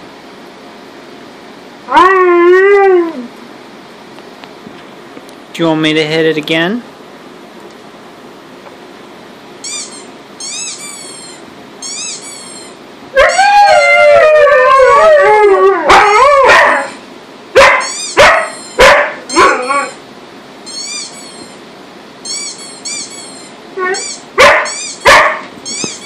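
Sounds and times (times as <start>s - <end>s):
dogs howling: 1.9s - 3.3s, 13.2s - 17.0s, 17.6s - 20.0s, 23.8s - 25.4s
rubber duck squeak: 9.6s - 12.8s, 20.7s - 21.6s, 22.2s - 25.0s, 25.6s - 26.0s
dogs barking sharply: 15.9s - 17.0s, 17.6s - 19.7s, 24.4s - 25.6s.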